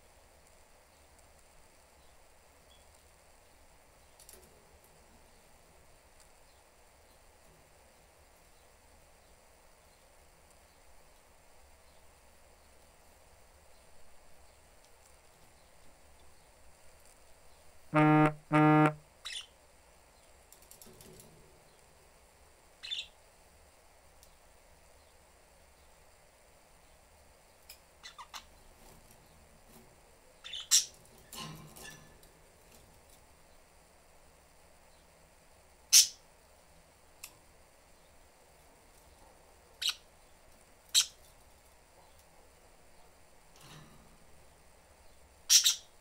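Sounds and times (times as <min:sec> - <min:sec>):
low electronic buzzer tones: 0:17.9 - 0:19.0
budgies chirping: 0:22.8 - 0:23.1, 0:28.0 - 0:28.5, 0:30.4 - 0:30.9, 0:45.5 - 0:45.9.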